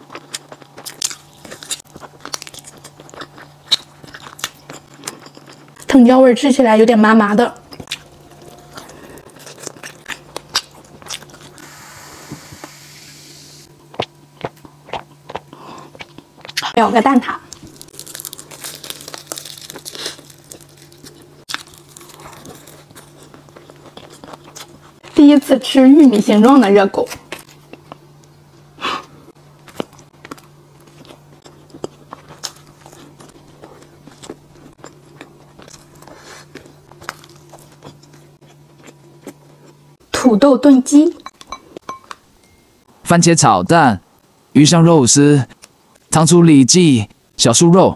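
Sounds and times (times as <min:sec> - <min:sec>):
biting and chewing: 0:00.0 - 0:06.0, 0:07.6 - 0:11.6, 0:13.7 - 0:16.8, 0:17.5 - 0:25.2, 0:27.1 - 0:40.0
faint steady low hum: 0:00.0 - 0:47.9.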